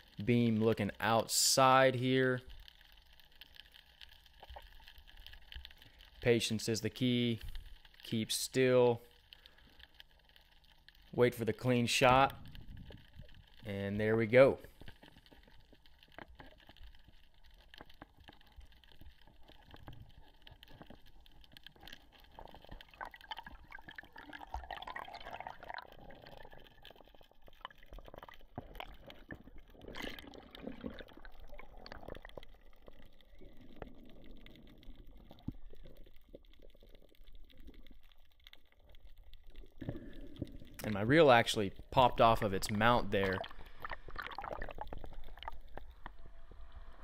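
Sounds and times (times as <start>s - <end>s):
underwater swirling and bubbling: 0.0s - 47.0s
small underwater clicks and knocks: 2.4s - 6.3s, 7.1s - 8.1s, 9.1s - 13.7s, 14.6s - 47.0s.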